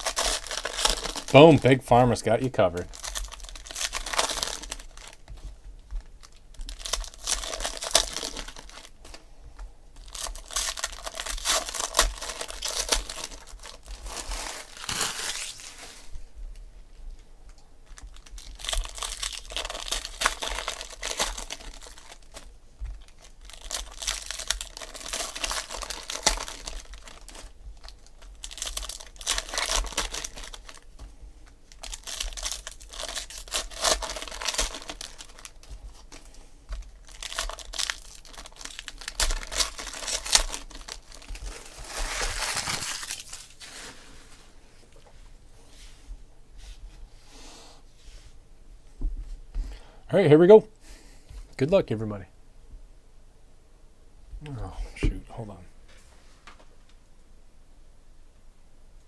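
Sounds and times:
foil wrappers crinkling and tearing: 0:00.0 - 0:09.2, 0:10.0 - 0:16.2, 0:17.8 - 0:45.0.

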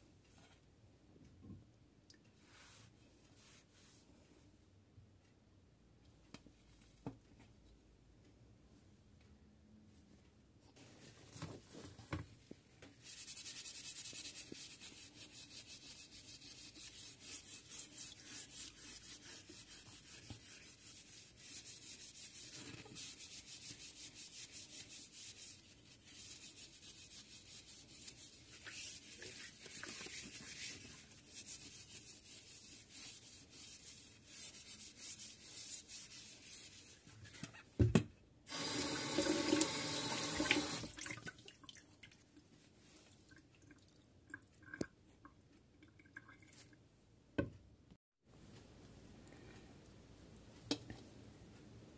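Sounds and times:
tap water running: 0:38.5 - 0:41.3.

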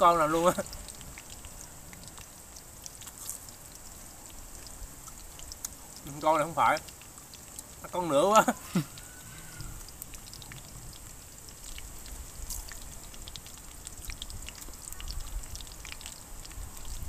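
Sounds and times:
person chewing crunchy food: 0:02.0 - 0:04.0, 0:04.6 - 0:06.0, 0:08.5 - 0:16.2.

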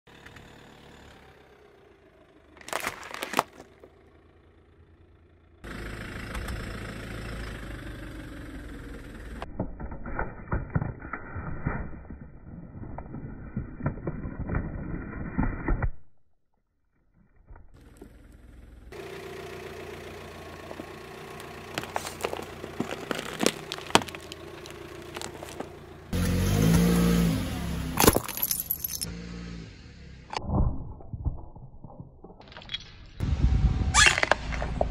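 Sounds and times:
sharp cracks of things breaking: 0:02.6 - 0:03.6, 0:22.2 - 0:25.6, 0:28.0 - 0:29.1
plastic crackling and crunching: 0:02.6 - 0:03.7, 0:21.7 - 0:25.7.

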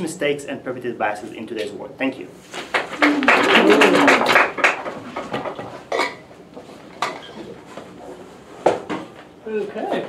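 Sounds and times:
audience applause: 0:02.7 - 0:05.1.

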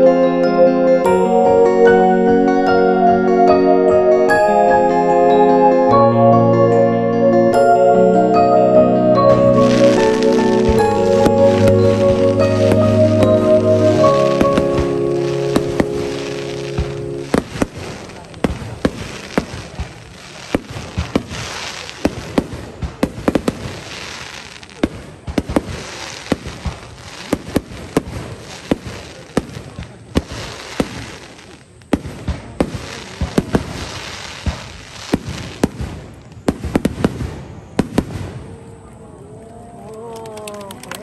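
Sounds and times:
firework crackling hiss: 0:09.4 - 0:38.5.

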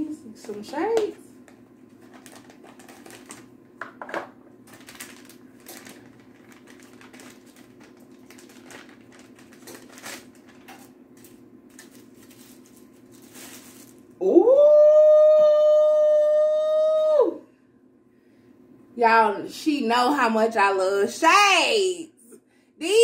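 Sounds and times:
wrapping paper crinkling: 0:01.9 - 0:03.6, 0:04.6 - 0:14.2.

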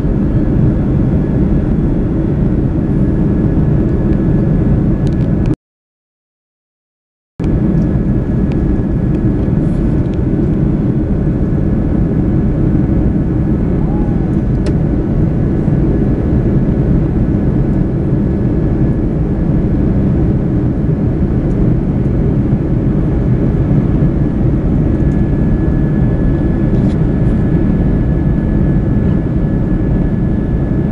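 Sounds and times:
jet engine cabin noise: 0:00.0 - 0:05.6, 0:07.4 - 0:30.9
faint steady whine: 0:07.4 - 0:30.9.

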